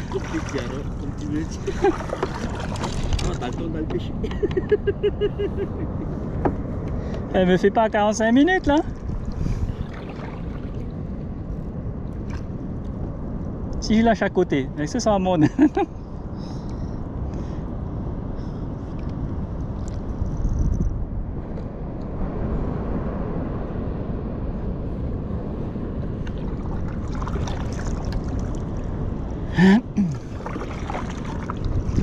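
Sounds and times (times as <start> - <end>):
water lapping: 0.0 - 4.5, 8.6 - 11.3, 26.1 - 32.0
wind rushing: 5.6 - 13.7, 30.2 - 32.0.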